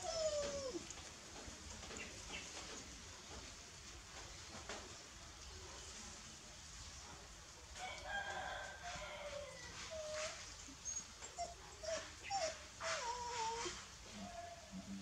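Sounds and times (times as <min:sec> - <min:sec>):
puppies squeaking and whining: 0:00.0 - 0:00.8, 0:09.9 - 0:13.8.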